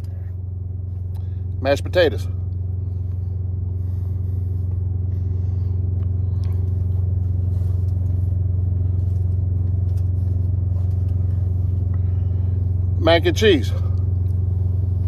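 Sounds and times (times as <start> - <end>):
diesel truck engine idling: 0.0 - 15.0
faint clicks and rustles: 2.5 - 12.9.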